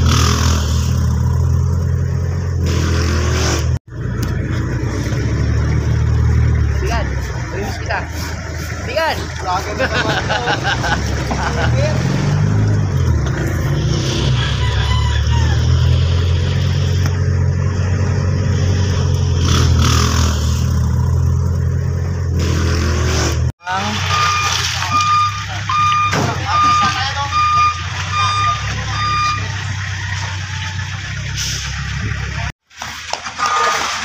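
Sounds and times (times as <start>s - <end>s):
truck engine humming: 0.0s - 34.0s
reversing alarm beeping: 23.7s - 29.8s.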